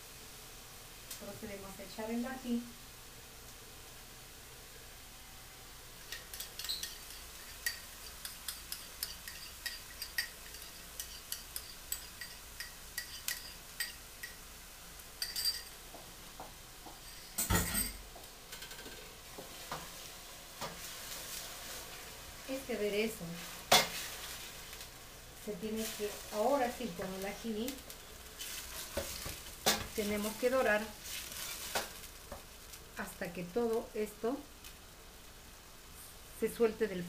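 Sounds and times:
onions sizzling: 0.0s - 37.0s
spoon tapping and scraping bowl: 6.1s - 14.4s, 15.2s - 15.8s.

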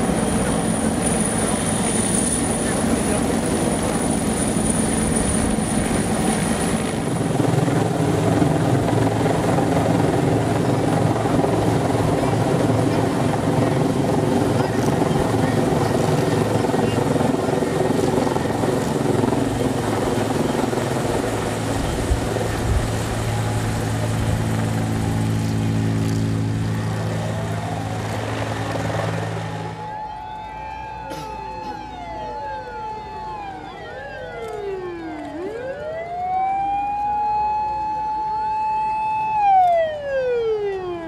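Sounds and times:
emergency sirens wailing: 0.0s - 41.0s.

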